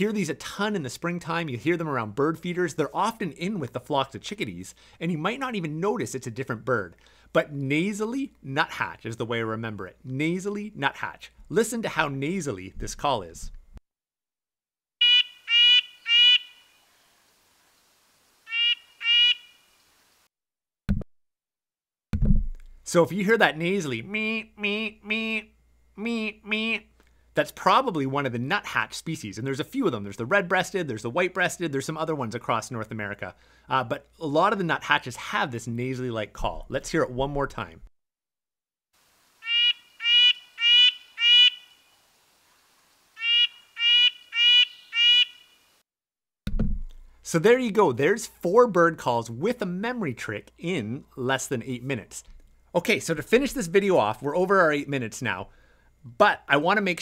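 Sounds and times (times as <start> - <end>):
nuthatch nasal calls: 15.0 - 16.8, 18.5 - 19.6, 39.4 - 41.8, 43.2 - 45.6.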